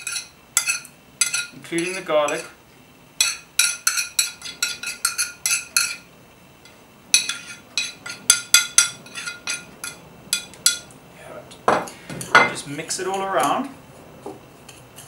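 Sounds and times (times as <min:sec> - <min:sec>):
metal spoon clinking on plate: 0:00.0 - 0:01.6, 0:03.2 - 0:06.1, 0:07.1 - 0:10.9.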